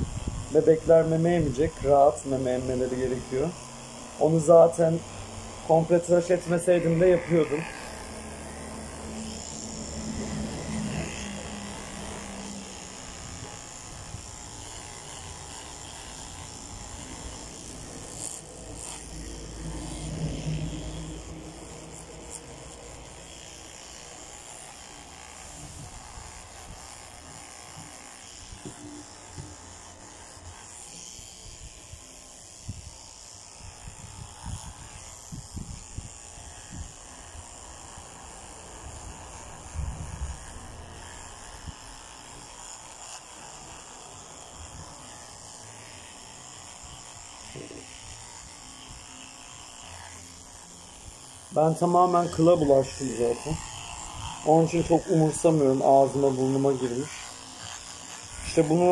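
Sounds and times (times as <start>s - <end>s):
electric hair clipper buzzing: 0.0s - 58.9s.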